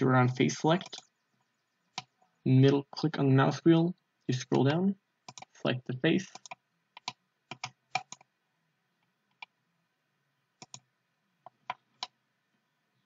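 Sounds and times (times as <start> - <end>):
mouse wheel scrolling: 0.1 - 2.8, 4.4 - 5.6, 6.2 - 8.3, 10.6 - 10.8, 11.4 - 12.2
computer mouse clicking: 0.2 - 2.2, 5.3 - 5.6, 6.3 - 8.3, 9.3 - 9.5, 10.6 - 12.2.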